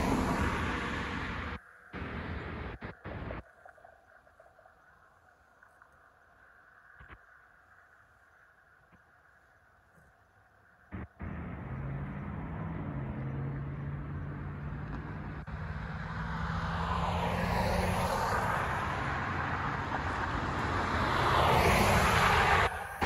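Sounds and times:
vehicles driving past: 0:00.0 - 0:03.4, 0:10.9 - 0:23.0.

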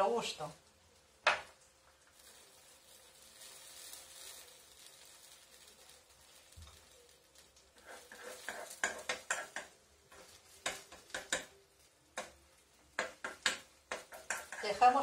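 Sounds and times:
metal spoon scraping frying pan: 0:07.7 - 0:11.6, 0:12.2 - 0:15.0.

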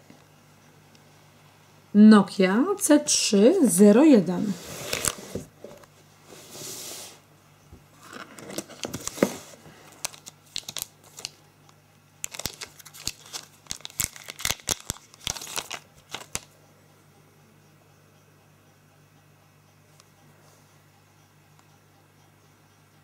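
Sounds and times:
plastic film crinkling: 0:04.8 - 0:05.4, 0:08.0 - 0:11.4, 0:12.2 - 0:16.5.

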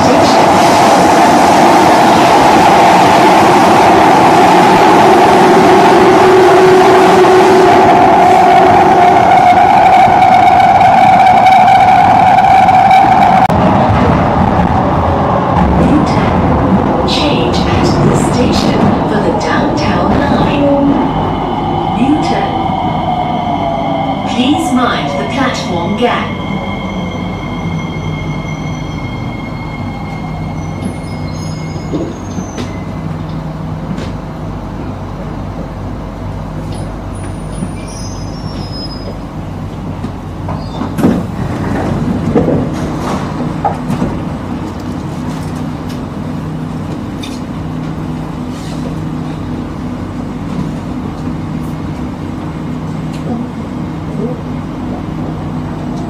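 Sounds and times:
subway train hum and rumble: 0:00.0 - 0:56.0
high whine: 0:05.2 - 0:32.9
knocks and squealing: 0:19.8 - 0:33.1.

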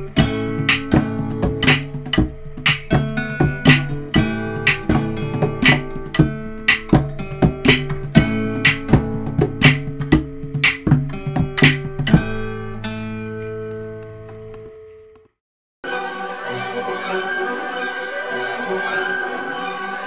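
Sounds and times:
acoustic guitar music: 0:00.0 - 0:15.2.

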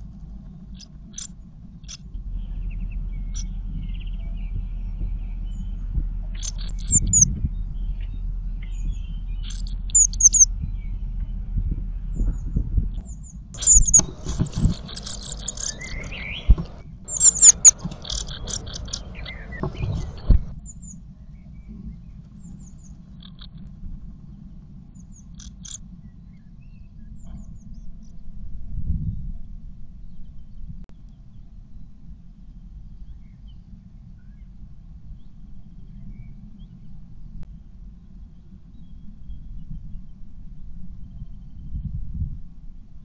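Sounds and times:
low steady hum: 0:00.0 - 0:43.0
birds chirping: 0:00.6 - 0:11.4, 0:12.2 - 0:20.9
rustling: 0:13.6 - 0:20.5.

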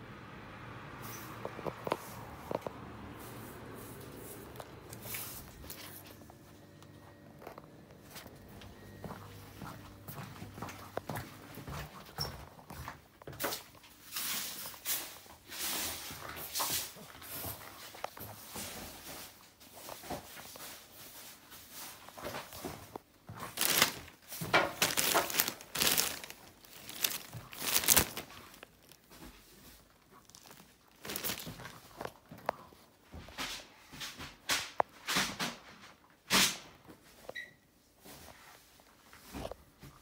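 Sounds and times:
rustling: 0:12.7 - 0:33.7.

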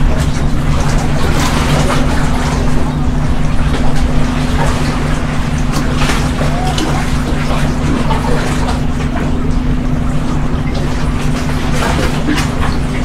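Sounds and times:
engine droning: 0:00.0 - 0:13.0.

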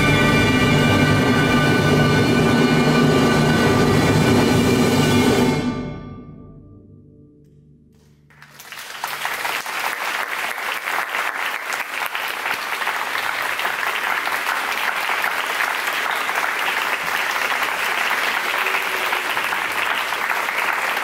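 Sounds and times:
audience applause: 0:08.3 - 0:21.0.

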